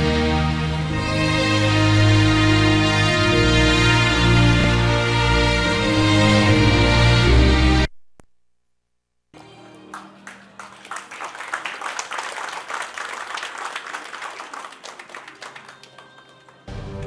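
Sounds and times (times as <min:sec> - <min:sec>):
audience applauding: 0:09.4 - 0:17.0.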